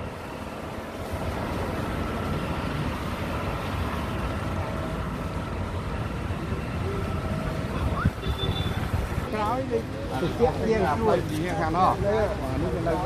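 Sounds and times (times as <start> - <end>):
city street traffic rumble: 0.0 - 13.0
wind buffeting microphone: 7.4 - 9.4.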